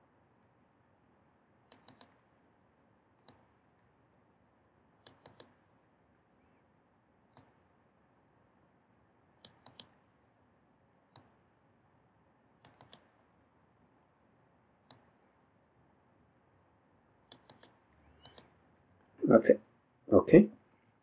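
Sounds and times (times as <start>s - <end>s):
mouse button clicks: 12.6s - 13.1s, 17.3s - 18.5s.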